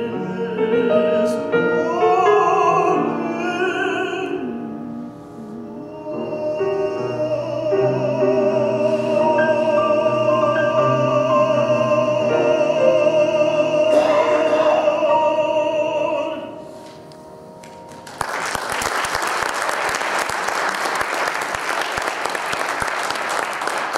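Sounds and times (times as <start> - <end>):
tenor singing with vibrato: 0.0 - 16.8
piano accompaniment: 0.0 - 21.5
audience applauding: 17.6 - 23.9.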